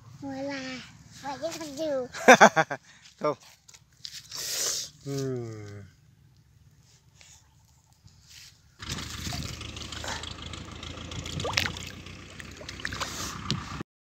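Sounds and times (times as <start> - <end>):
water splashing and sloshing: 11.2 - 13.8.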